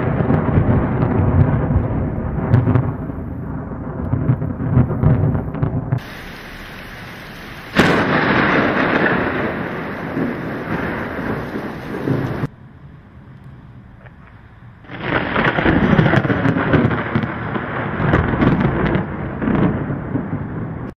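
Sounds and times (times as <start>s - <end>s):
sharp crack of thunder: 0.0s - 12.5s, 14.9s - 20.9s
low rolling thunder: 0.0s - 13.9s, 14.7s - 20.9s
heavy hissing rain: 6.0s - 12.5s, 14.9s - 20.3s.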